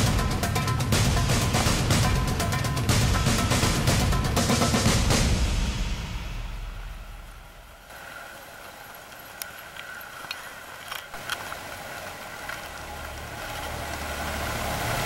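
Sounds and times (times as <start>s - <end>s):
low rumble: 0.0s - 7.9s
steady hiss: 0.0s - 15.0s.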